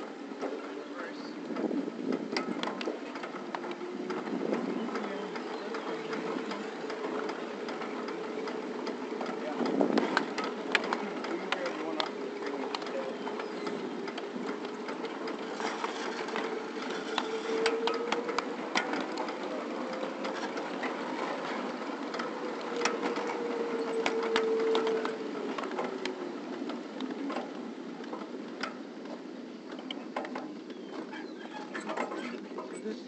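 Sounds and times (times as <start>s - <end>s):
train running gear clatter: 0.0s - 33.0s
wheels clicking on rails: 0.0s - 33.0s.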